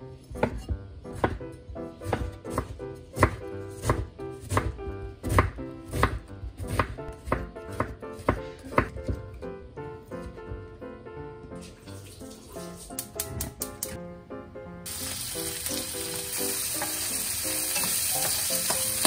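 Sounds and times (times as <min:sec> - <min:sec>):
knife chopping on wooden board: 0:00.3 - 0:01.4, 0:02.0 - 0:09.2.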